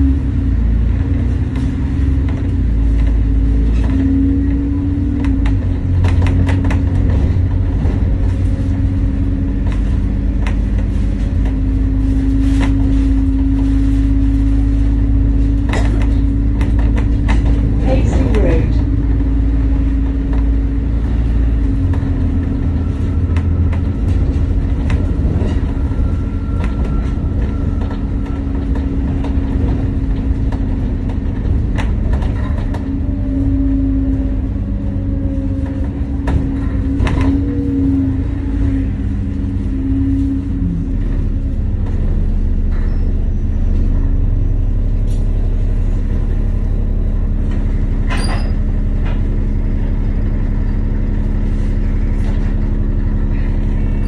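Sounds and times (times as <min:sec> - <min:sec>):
bus engine idling: 0:00.0 - 0:54.0
bus engine rumble: 0:00.0 - 0:54.0
bodywork rattles and clicks: 0:00.8 - 0:40.2.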